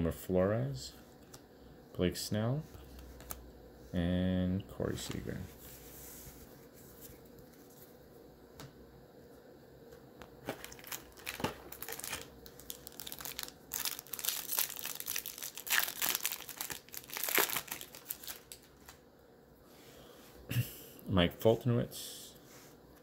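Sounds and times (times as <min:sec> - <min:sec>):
wrapper crinkling and tearing: 0:10.4 - 0:19.0.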